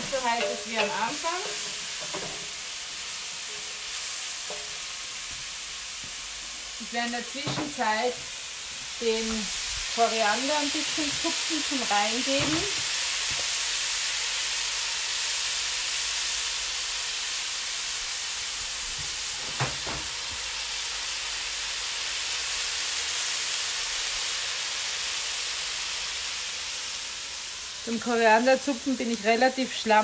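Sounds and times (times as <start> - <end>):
wok knock: 0.0 - 2.6, 4.4 - 5.5, 7.3 - 7.8, 12.2 - 13.5, 18.9 - 20.5
food sizzling in a wok: 0.0 - 30.0.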